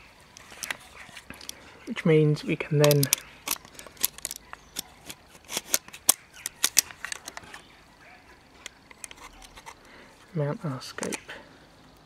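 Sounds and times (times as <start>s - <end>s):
metal scope mounts clicking: 0.3s - 1.6s, 2.7s - 7.7s, 8.6s - 9.8s, 10.9s - 11.3s.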